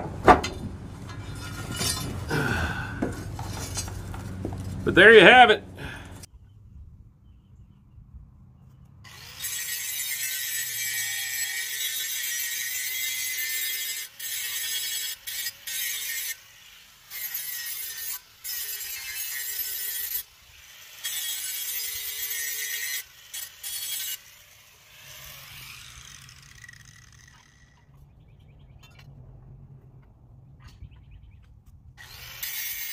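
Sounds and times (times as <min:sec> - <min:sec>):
angle grinder grinding steel: 0:01.0 - 0:06.2, 0:09.1 - 0:27.9, 0:32.0 - 0:32.9.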